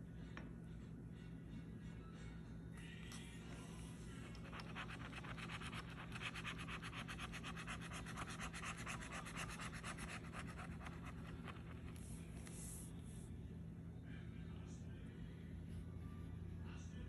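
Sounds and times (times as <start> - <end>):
faint low hum: 0.0 - 17.0
scratching lottery ticket: 4.2 - 12.9.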